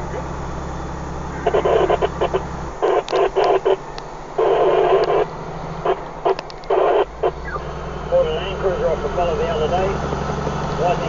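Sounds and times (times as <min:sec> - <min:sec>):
tinny voice over radio speaker: 0:00.0 - 0:00.3, 0:01.4 - 0:03.8, 0:04.4 - 0:05.3, 0:06.7 - 0:10.1, 0:10.8 - 0:11.0
low truck engine hum: 0:00.0 - 0:11.0.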